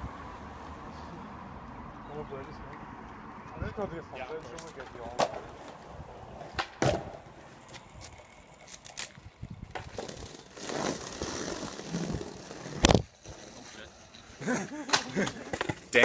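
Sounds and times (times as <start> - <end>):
skateboards clacking: 4.3 - 16.0
skateboard wheels rumbling on bricks: 4.9 - 14.6.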